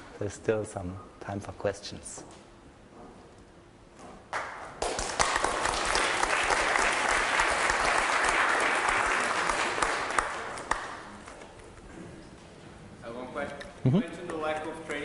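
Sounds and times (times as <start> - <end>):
audience applauding: 4.4 - 11.1.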